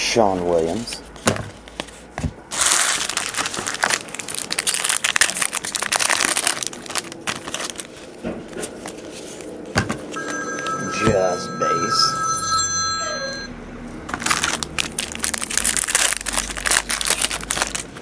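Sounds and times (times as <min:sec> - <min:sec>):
cards rustling: 0:00.8 - 0:09.8, 0:14.1 - 0:18.0
foil wrapper tearing and crinkling: 0:02.5 - 0:08.2, 0:14.1 - 0:18.0
telephone ringing: 0:10.2 - 0:13.6.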